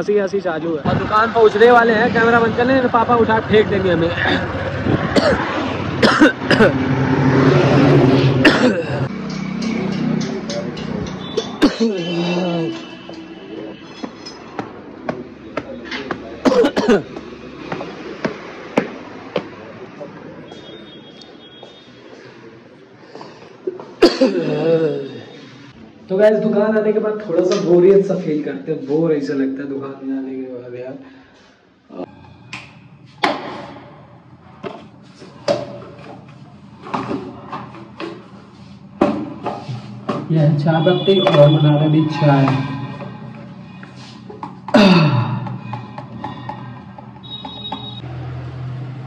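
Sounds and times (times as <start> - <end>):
footsteps on concrete stairs: 14.0 - 16.3, 17.1 - 19.6.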